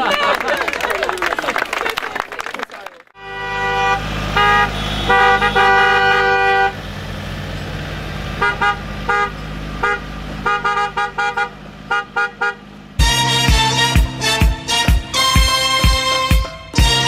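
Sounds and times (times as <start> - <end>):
car engines running: 3.2 - 17.0
car horns honking: 3.2 - 17.0.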